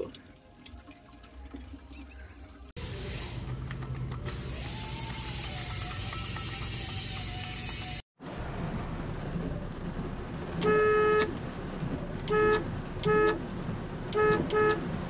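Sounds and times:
car horn honking: 10.6s - 11.4s, 12.2s - 13.4s, 14.1s - 15.0s.

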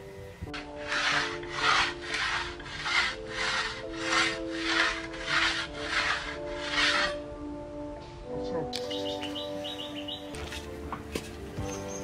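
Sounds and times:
knife scraping on wood: 0.5s - 7.2s.

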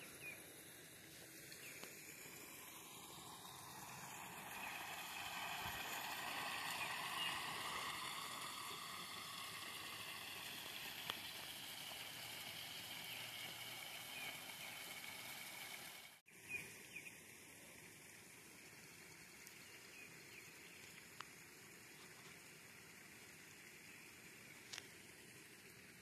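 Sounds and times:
steady outdoor hiss: 0.0s - 26.0s.

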